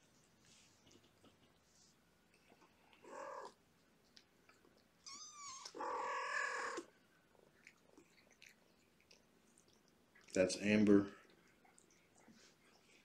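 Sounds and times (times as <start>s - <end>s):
cat chirping: 3.0s - 3.6s, 5.0s - 6.9s
cat meowing: 3.0s - 3.6s, 5.0s - 6.9s.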